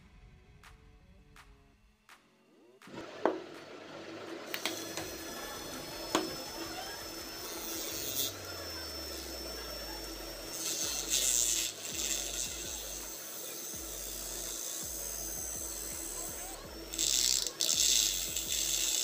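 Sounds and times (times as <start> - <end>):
small motor humming: 2.8 - 19.0.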